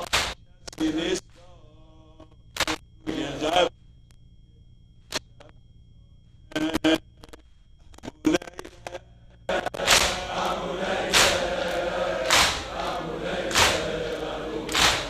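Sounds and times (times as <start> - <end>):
hands slapping chests: 0.0 - 0.4, 9.5 - 15.0
crowd chanting in unison: 9.5 - 15.0.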